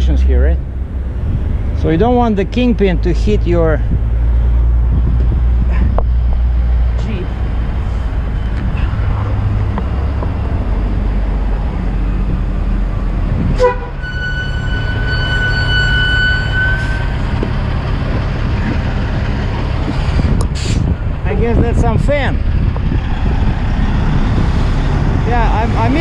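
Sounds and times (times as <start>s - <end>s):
high whistling tone: 14.0s - 17.4s.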